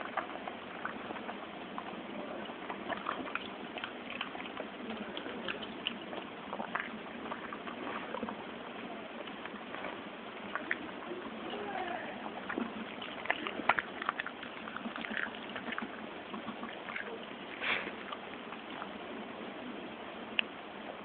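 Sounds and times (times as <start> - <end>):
dog chewing and licking: 0.0 - 8.4, 12.4 - 19.0.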